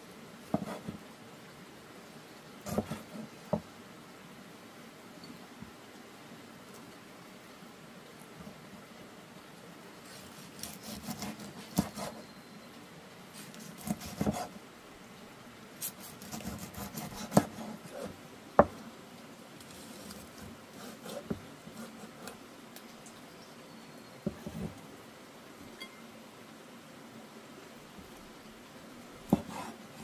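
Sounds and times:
rustling: 19.6s - 23.2s.

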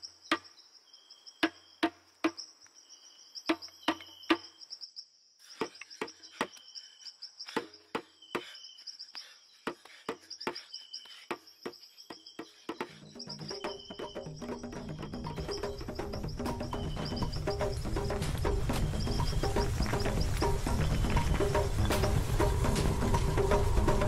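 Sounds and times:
insects chirring: 0.0s - 24.0s.

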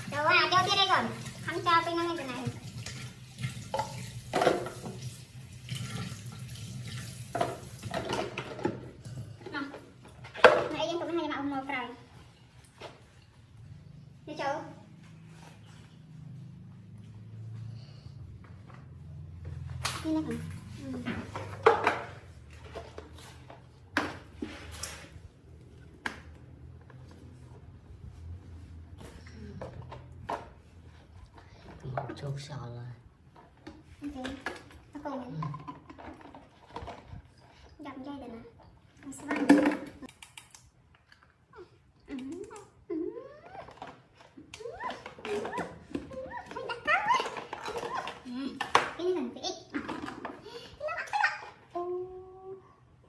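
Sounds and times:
faucet running into steel sink: 0.0s - 7.9s
knocks and clatters at sink: 0.1s - 11.3s, 21.0s - 23.2s, 33.4s - 37.3s, 39.0s - 40.1s.

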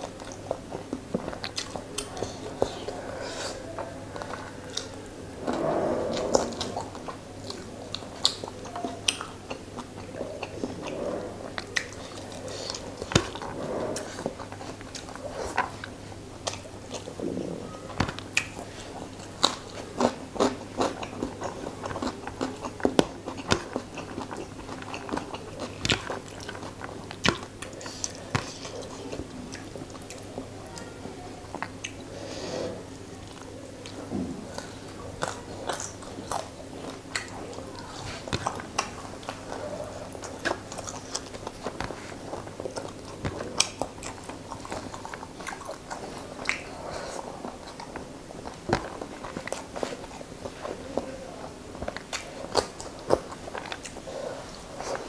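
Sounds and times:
chewing and lip-smacking: 0.0s - 55.0s
wet mouth clicks: 46.4s - 46.8s.

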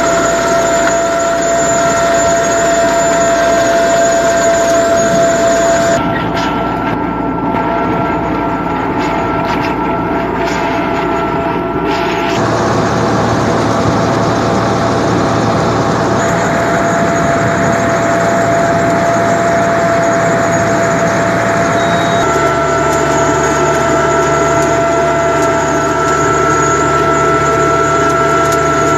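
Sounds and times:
high-pitched whine: 0.0s - 28.9s
tractor engine under load: 0.0s - 28.9s.

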